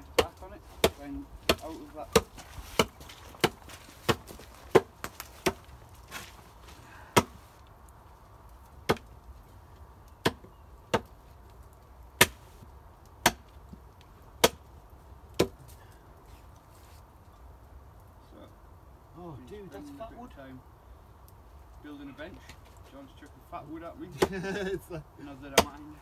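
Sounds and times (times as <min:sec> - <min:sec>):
wood being chopped: 0:00.0 - 0:06.4, 0:07.1 - 0:07.5, 0:08.8 - 0:09.2, 0:10.2 - 0:11.2, 0:12.2 - 0:12.5, 0:13.2 - 0:13.8, 0:14.4 - 0:14.7, 0:15.3 - 0:15.7, 0:24.1 - 0:24.6, 0:25.5 - 0:26.0.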